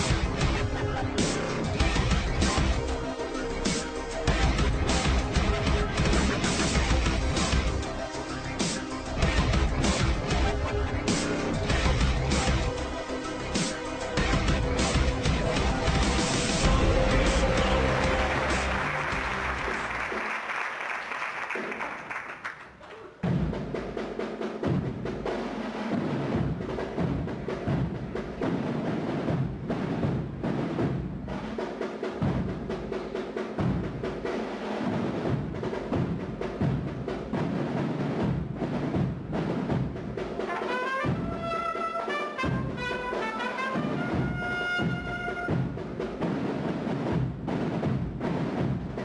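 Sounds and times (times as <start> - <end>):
brass chord: 0.0 - 20.0, 40.4 - 45.7
high brass melody: 0.0 - 20.2, 40.4 - 45.8
marching drums: 0.0 - 49.0.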